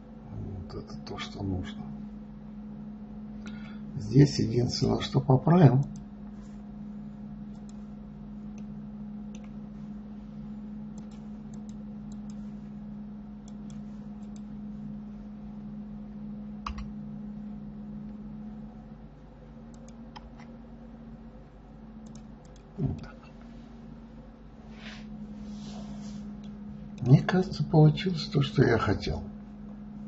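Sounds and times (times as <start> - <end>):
low electrical hum: 0.0 - 30.0
computer keyboard and mouse clicks: 9.3 - 9.5, 11.0 - 12.4, 16.6 - 16.9, 19.7 - 20.5, 22.0 - 23.2.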